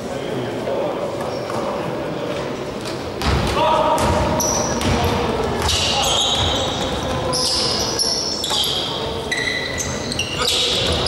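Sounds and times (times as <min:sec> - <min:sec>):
basketball bouncing: 0:03.2 - 0:07.3
shoes squeaking on wooden floor: 0:05.6 - 0:11.0.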